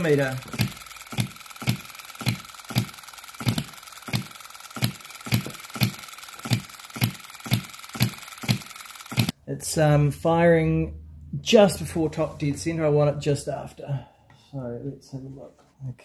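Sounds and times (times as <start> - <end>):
model engine popping: 0.0 - 9.3.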